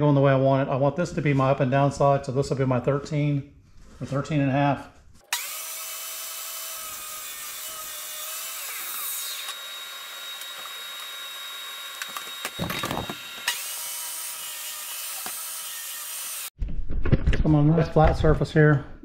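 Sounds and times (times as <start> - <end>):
table saw running: 5.3 - 16.5
plywood sliding and knocking: 12.0 - 13.2.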